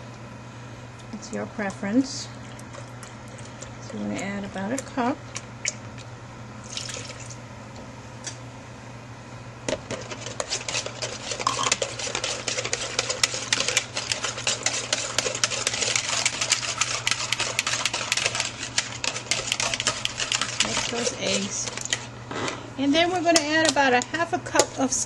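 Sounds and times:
whisk clicking against pot: 9.7 - 22.1, 23.0 - 24.8.

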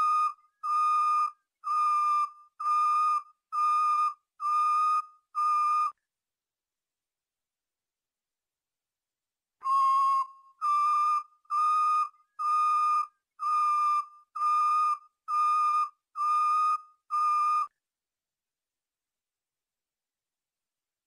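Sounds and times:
canary whistling flute-like notes: 9.6 - 17.7.

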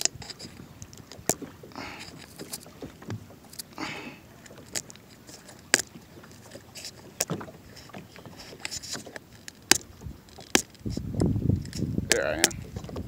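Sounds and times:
rubbing and scraping: 0.0 - 0.7, 4.6 - 13.0.

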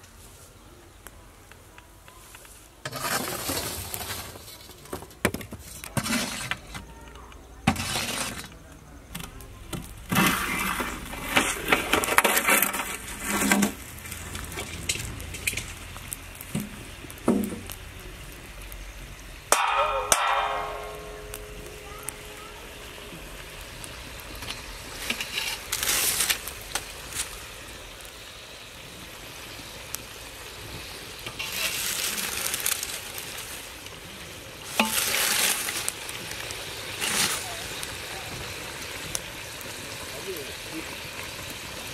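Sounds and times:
charcoal clinking and sliding: 2.3 - 29.0, 29.6 - 39.4
metal scraping: 5.6 - 6.8, 7.7 - 17.7, 19.4 - 27.4, 34.7 - 35.9.

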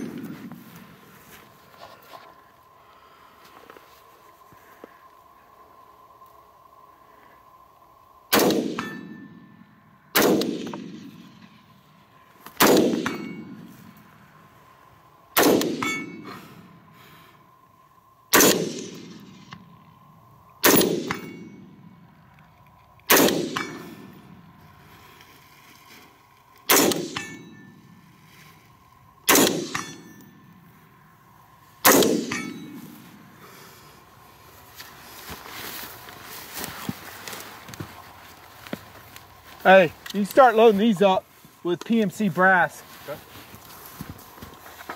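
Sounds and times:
rifle shots echoing: 8.3 - 9.2, 10.1 - 11.5, 12.6 - 13.7, 15.4 - 16.2, 18.3 - 19.5, 20.6 - 21.6, 23.1 - 24.1, 26.7 - 27.4, 29.2 - 30.1, 31.8 - 33.1.

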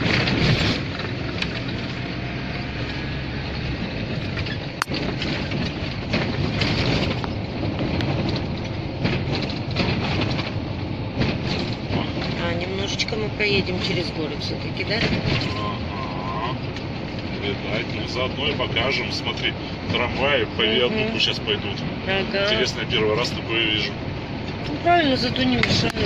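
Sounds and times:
van engine and road noise: 0.0 - 26.0
rattles: 4.2 - 15.7.

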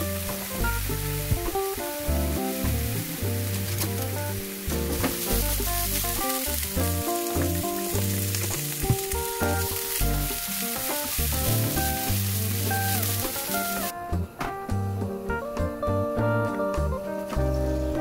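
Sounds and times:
onion sizzling in oil: 0.0 - 13.9
background music: 0.0 - 18.0.

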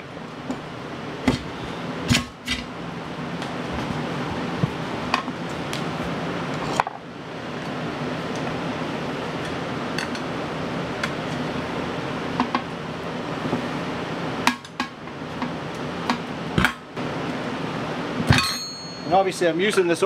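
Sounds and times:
metal tools clinking on wheel rim: 18.3 - 20.0.

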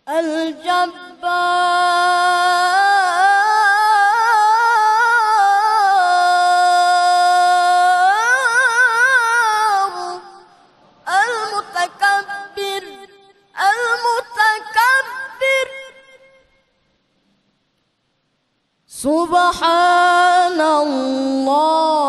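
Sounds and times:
man reciting melodically: 0.0 - 10.5, 11.1 - 16.2.

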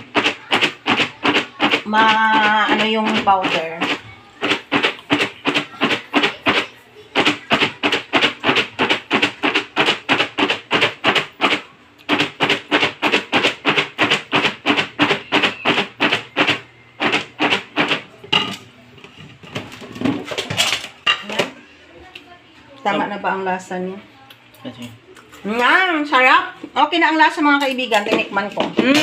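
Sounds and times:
popcorn rattling in shaken container: 0.0 - 18.1.

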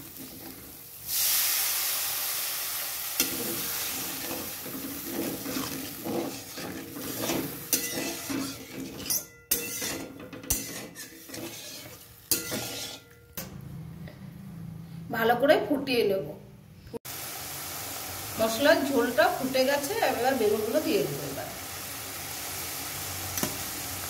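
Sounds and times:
water sizzling in hot pan: 0.0 - 13.0, 17.0 - 24.0
wooden spatula scraping a pan: 3.2 - 13.1.

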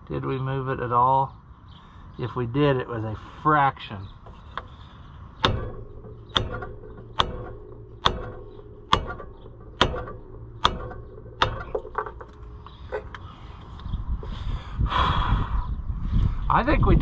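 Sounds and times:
hammer striking wood block: 5.4 - 12.5.

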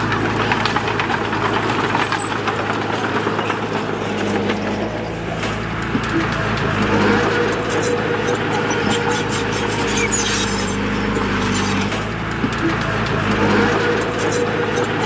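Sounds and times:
diesel engine running under load: 0.0 - 15.0
metallic clicks and clanks: 0.0 - 15.0.

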